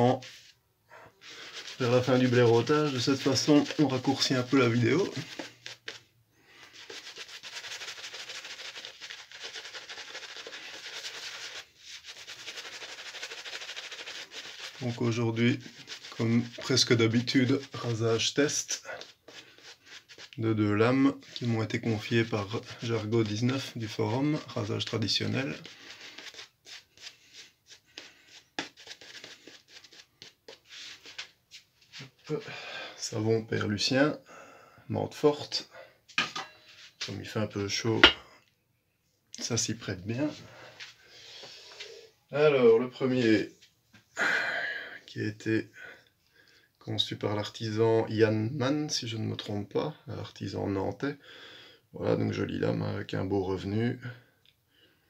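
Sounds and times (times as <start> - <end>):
shaving brush swishing lather: 0.0 - 6.0, 6.6 - 32.3.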